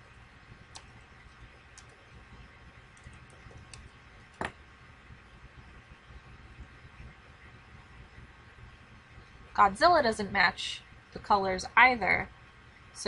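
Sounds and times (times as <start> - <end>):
low background hum: 0.0 - 13.0
mouse and keyboard clicks: 0.7 - 2.0, 3.0 - 4.6.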